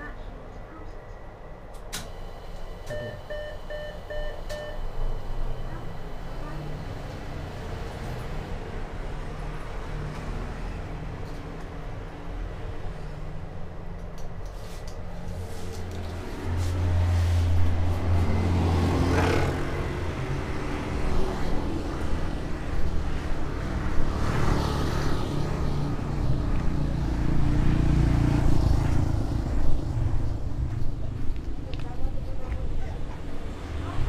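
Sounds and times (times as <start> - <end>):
scooter and car engines passing: 16.0 - 31.7.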